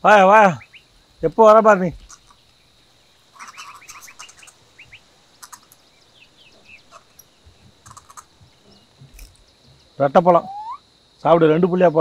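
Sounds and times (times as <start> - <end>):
small birds chirping: 0.0 - 12.0.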